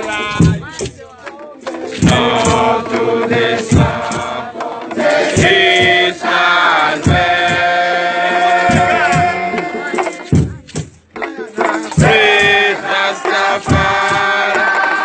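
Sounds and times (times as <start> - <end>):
heavy drum beats: 0.0 - 15.0
group of voices chanting: 1.7 - 10.6, 11.2 - 15.0.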